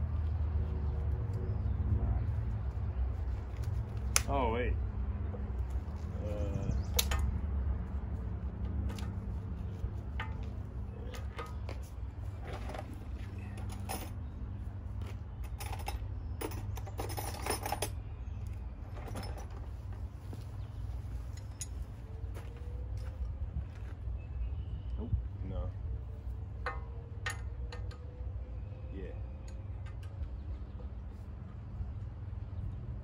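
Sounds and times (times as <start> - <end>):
wrenches clinking and jangling: 12.4 - 14.2, 15.4 - 18.0, 18.8 - 19.7.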